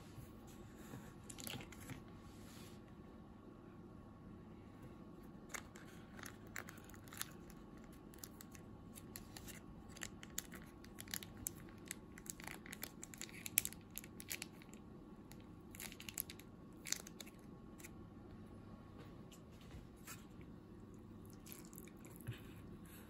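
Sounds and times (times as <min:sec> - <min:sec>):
plastic packet crinkling: 0:05.5 - 0:17.5.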